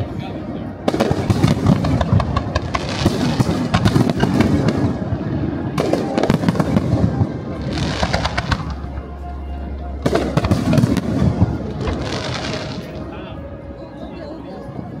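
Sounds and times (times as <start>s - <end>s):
fireworks bangs and crackling: 0.8s - 9.1s, 10.0s - 13.1s.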